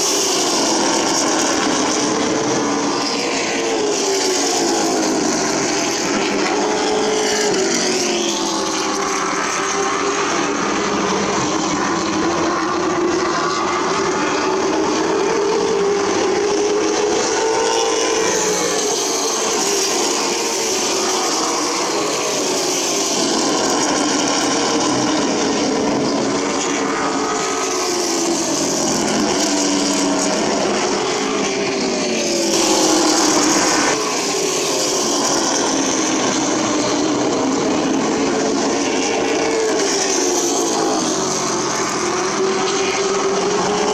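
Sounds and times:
race car engines: 0:00.0 - 0:43.9.

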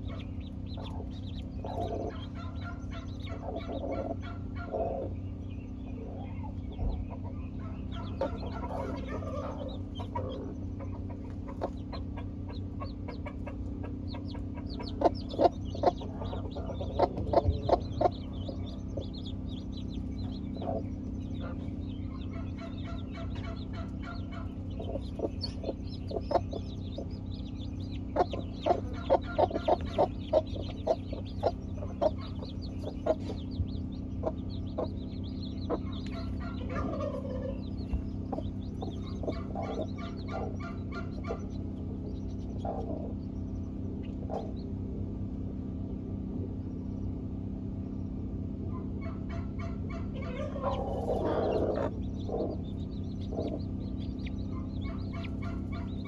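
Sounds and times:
hens clucking: 0:00.0 - 0:44.9, 0:48.7 - 0:56.0
chicks peeping: 0:00.0 - 0:56.0
steady low hum: 0:00.0 - 0:56.0.

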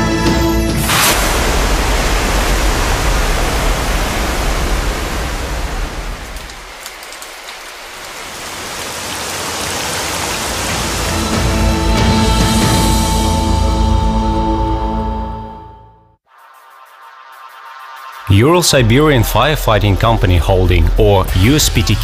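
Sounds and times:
spraying water hiss: 0:00.8 - 0:11.8.

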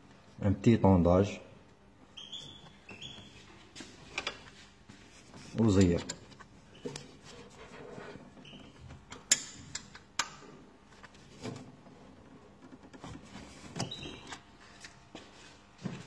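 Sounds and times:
screwdrivers clicking on metal: 0:09.1 - 0:10.4.

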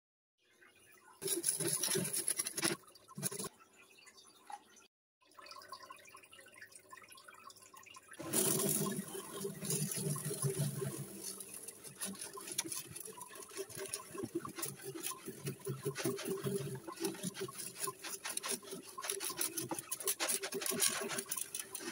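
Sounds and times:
gravel pouring into glass tank: 0:08.2 - 0:21.9.

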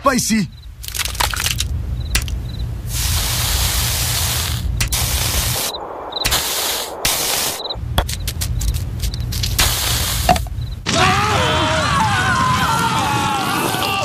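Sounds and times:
low rumble: 0:00.5 - 0:10.9
harsh hissing: 0:00.6 - 0:11.2.

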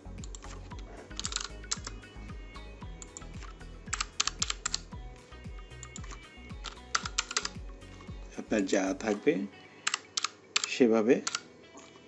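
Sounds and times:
quiet background music with beat: 0:00.0 - 0:12.0
computer keyboard typing: 0:00.2 - 0:02.1, 0:02.9 - 0:05.0, 0:05.7 - 0:08.2, 0:09.8 - 0:11.4.

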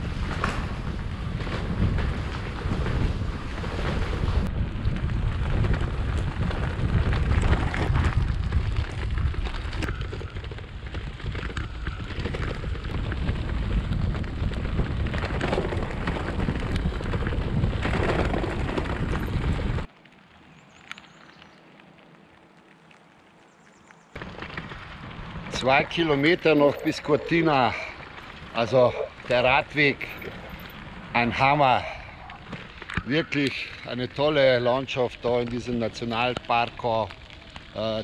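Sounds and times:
wind buffeting microphone: 0:00.0 - 0:19.9
bicycle tyres crackling on gravel: 0:00.0 - 0:38.0.

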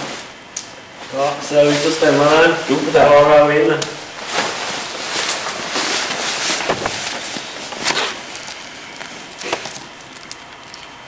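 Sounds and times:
paper rustling and scraping: 0:01.1 - 0:03.2, 0:04.0 - 0:10.4.

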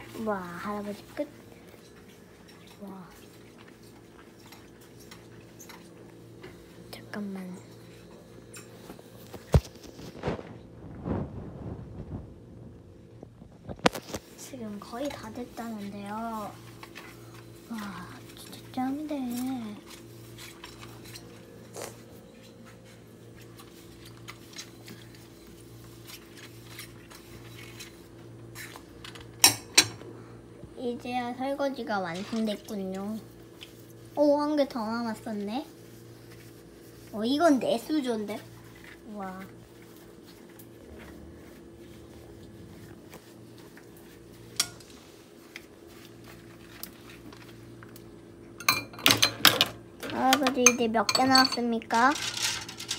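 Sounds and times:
steady low hum: 0:00.0 - 0:52.9
dishes and utensils clinking: 0:48.6 - 0:52.9.

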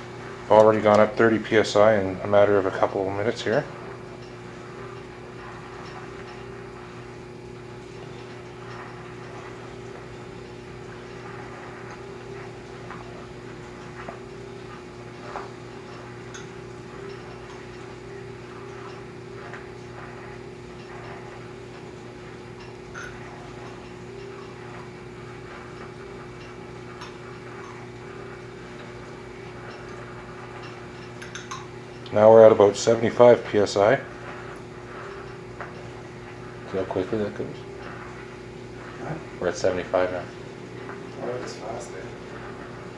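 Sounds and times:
steady low hum: 0:00.0 - 0:42.9.

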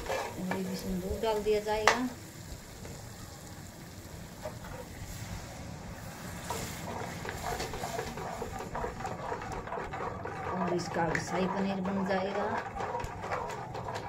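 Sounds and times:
steel ladle stirring: 0:00.0 - 0:00.7, 0:06.4 - 0:14.0.

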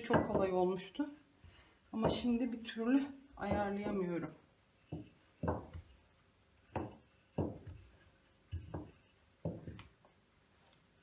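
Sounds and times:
rolling pin thuds on counter: 0:00.0 - 0:00.6, 0:04.9 - 0:05.9, 0:06.7 - 0:07.8.

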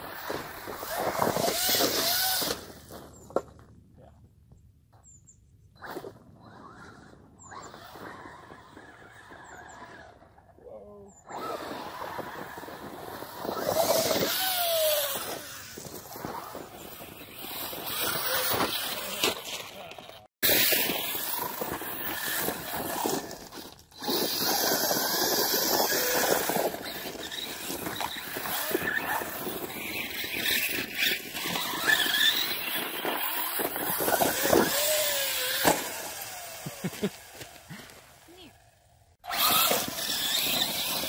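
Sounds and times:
tyres scrabbling on gravel: 0:00.0 - 0:03.9, 0:12.1 - 0:38.3, 0:39.3 - 0:41.0
electric motor whining: 0:00.4 - 0:02.8, 0:11.3 - 0:19.4, 0:20.4 - 0:37.9, 0:39.2 - 0:41.0.

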